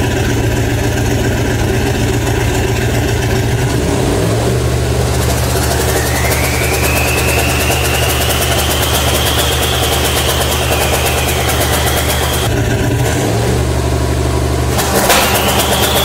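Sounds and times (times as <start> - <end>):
engine running steadily: 0.0 - 16.0
turbo whine: 5.2 - 12.5, 14.8 - 16.0.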